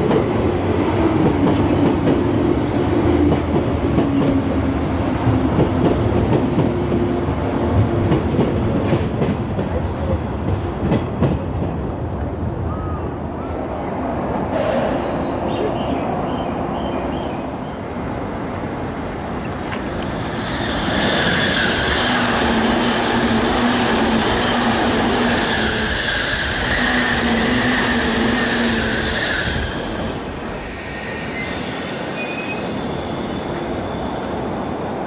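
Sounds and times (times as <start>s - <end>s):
high train whine: 0.0s - 35.0s
train rushing past: 0.0s - 35.0s.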